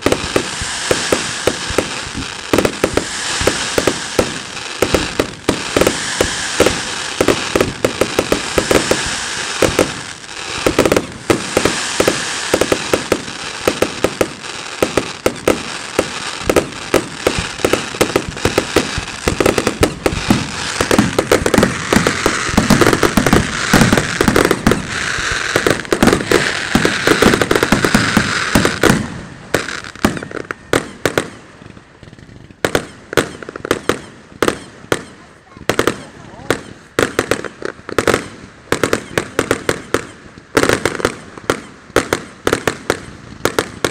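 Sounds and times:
fireworks bangs: 0.0 - 43.9
fireworks crackling hiss: 0.0 - 43.9.

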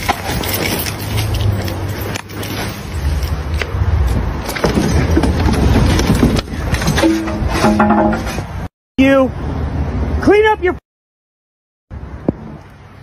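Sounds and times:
low rumble of street traffic: 0.0 - 10.8, 11.9 - 13.0.

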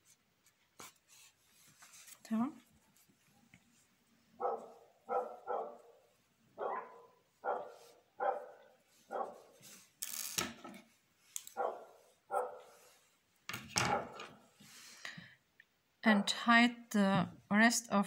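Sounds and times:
dog barking: 4.4 - 6.0, 6.6 - 9.5, 11.6 - 12.8, 13.9 - 14.2.

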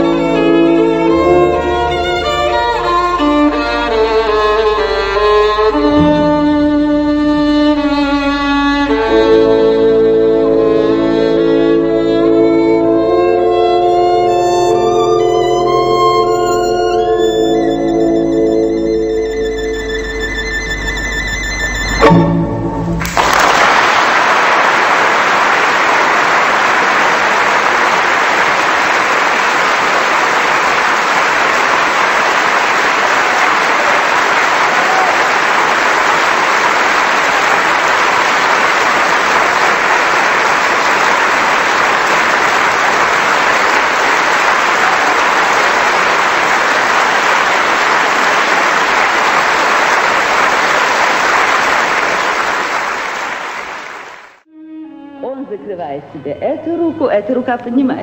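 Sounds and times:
audience applauding: 23.0 - 54.4.

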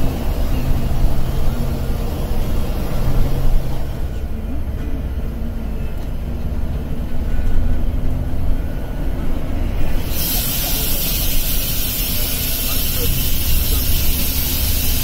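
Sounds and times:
bus engine rumble: 0.0 - 15.0
loud steady hiss: 9.9 - 15.0.

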